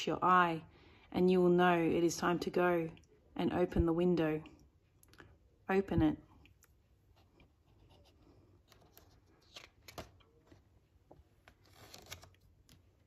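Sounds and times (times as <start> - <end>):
paper rustling: 7.6 - 13.0.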